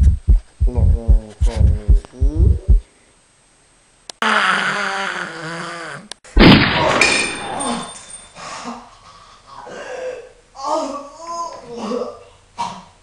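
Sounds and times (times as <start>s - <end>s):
sudden loud burst: 6.4s - 7.0s.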